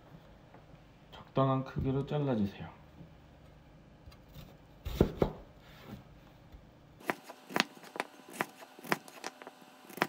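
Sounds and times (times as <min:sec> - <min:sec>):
knife chopping on wooden board: 0:07.0 - 0:10.0.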